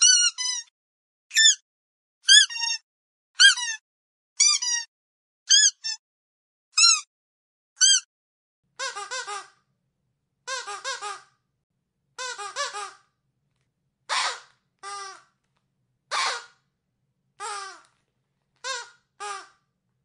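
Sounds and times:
squeaky dog toy squeaking: 0.0s - 0.7s, 1.3s - 1.6s, 2.2s - 2.8s, 3.4s - 3.8s, 4.4s - 4.9s, 5.5s - 6.0s, 6.8s - 7.1s, 7.8s - 8.1s, 8.8s - 9.6s, 10.5s - 11.3s, 12.2s - 13.1s, 14.1s - 15.3s, 16.1s - 16.6s, 17.4s - 17.9s, 18.6s - 19.6s.

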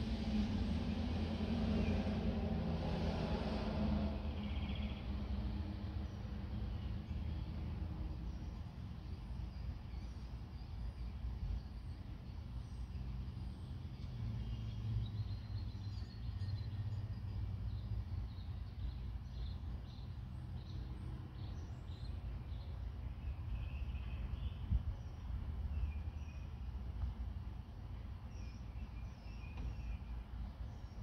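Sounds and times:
small birds chirping: 4.3s - 31.0s.

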